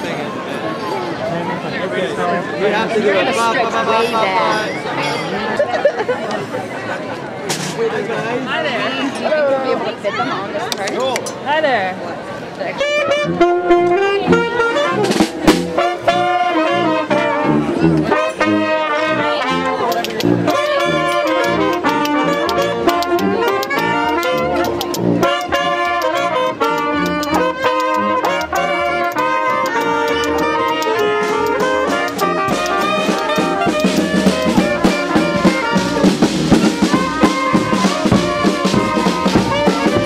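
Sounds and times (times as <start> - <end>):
brass band playing: 2.7 - 5.5, 12.8 - 40.0
saxophones playing melody: 3.2 - 5.5, 12.8 - 40.0
sousaphone bass line: 20.2 - 40.0.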